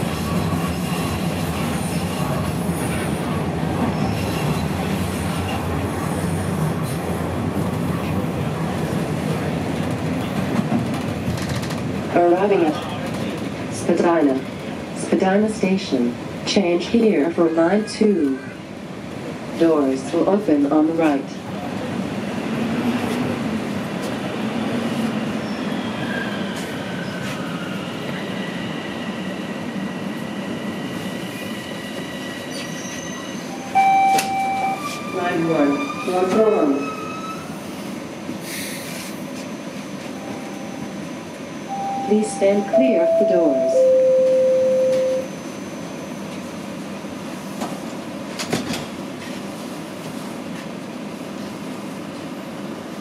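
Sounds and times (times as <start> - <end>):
wheels rumbling on rail: 0.0 - 53.0
door-closing chime: 33.8 - 34.8, 42.8 - 45.3.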